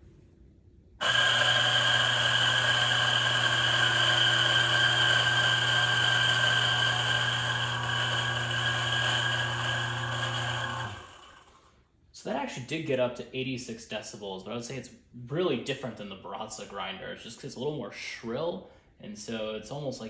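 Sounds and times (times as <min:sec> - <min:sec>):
coffee grinder whining: 0:01.0 - 0:11.7.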